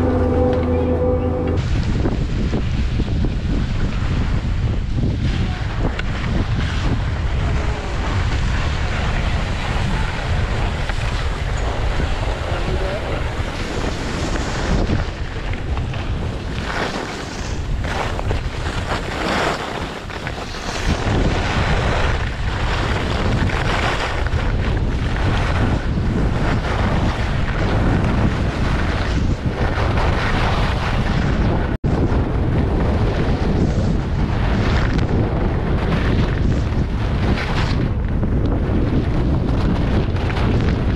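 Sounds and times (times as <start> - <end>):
wind on microphone: 0.0 - 40.9
skis scraping over snow: 5.2 - 32.2, 32.8 - 37.9.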